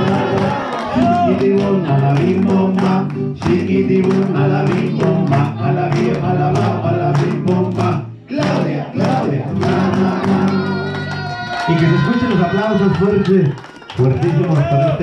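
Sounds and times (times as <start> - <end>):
group singing: 0.0 - 11.2
music: 0.0 - 14.1
hands clapping: 0.0 - 15.0.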